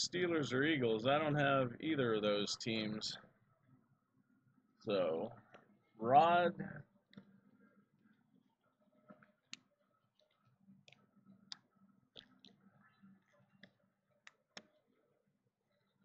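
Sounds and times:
faint clicks and taps: 5.3s - 5.9s, 7.0s - 15.0s.

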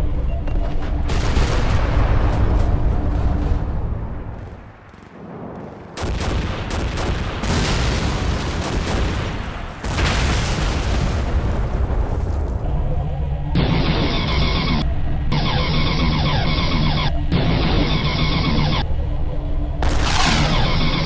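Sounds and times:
rapid machine-gun fire: 4.9s - 11.2s, 19.8s - 21.0s.

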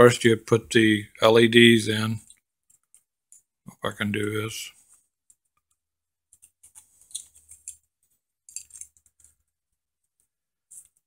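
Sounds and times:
plastic parts clicking and scraping: 6.3s - 9.5s, 10.1s - 11.0s.

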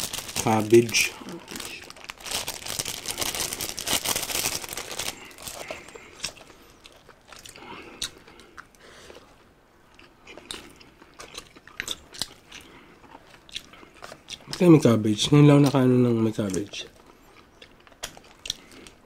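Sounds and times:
plastic bag crinkling: 0.0s - 7.5s
chewing and crunching: 0.0s - 14.8s, 15.5s - 19.0s.

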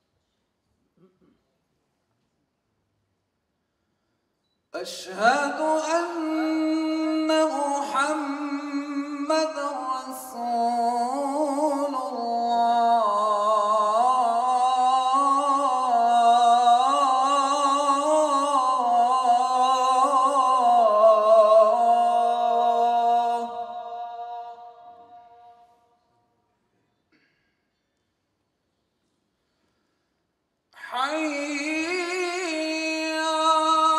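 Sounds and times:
man singing call to prayer: 4.8s - 25.7s, 30.8s - 33.9s.

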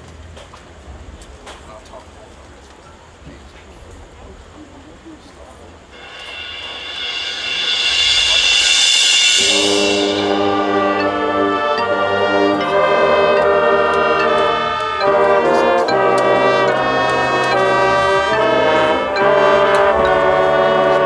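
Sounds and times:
marching band brass chords: 6.0s - 21.0s.

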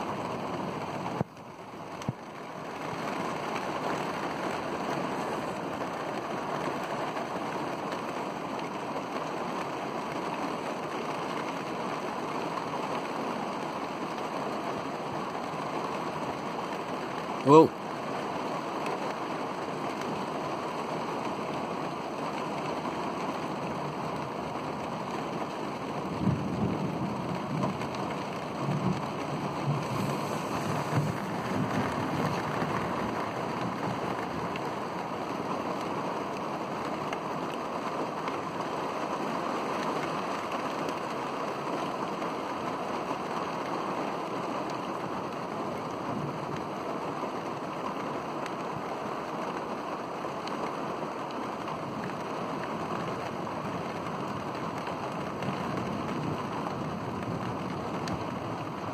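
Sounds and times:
heavy rain falling: 0.0s - 58.9s
thunder rumbling: 25.9s - 34.5s.

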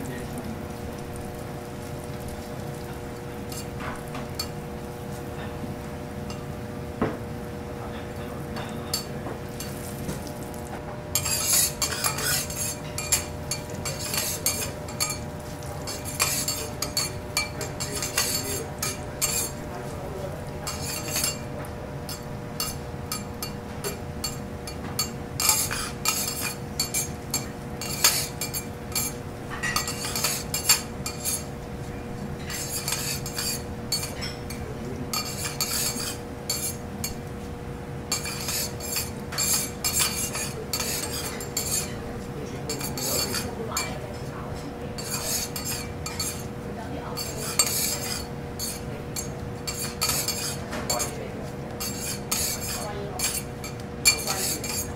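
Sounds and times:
metal spatulas scraping on griddle: 11.1s - 19.7s, 20.7s - 21.5s, 25.0s - 31.6s, 32.4s - 37.2s, 38.1s - 44.3s, 45.0s - 46.5s, 47.1s - 54.9s.

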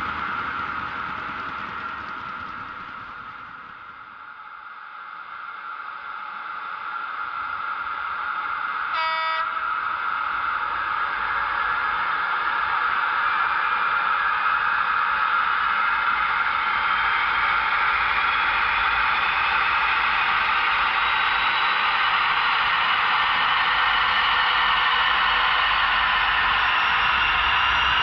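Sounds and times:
model train buzzing hum: 0.0s - 28.0s
short train horn toot: 8.9s - 9.8s.

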